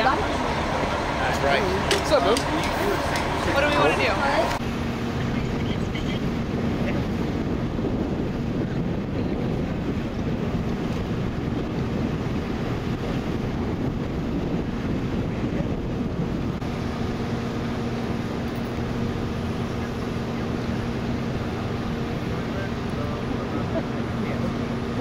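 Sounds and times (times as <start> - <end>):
engine idling: 0.0 - 7.0
wind noise on microphone: 1.4 - 25.0.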